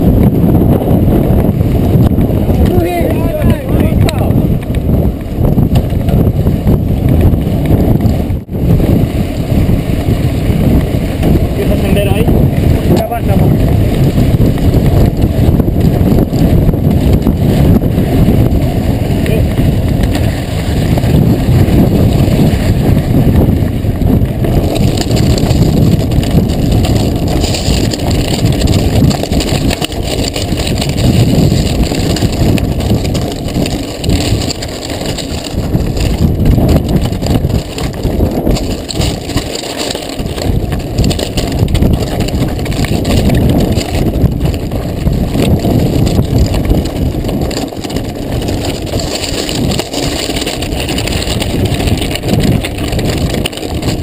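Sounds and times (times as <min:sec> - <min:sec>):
bike frame rattling: 0:00.0 - 0:54.0
tyres crunching on stones: 0:24.3 - 0:54.0.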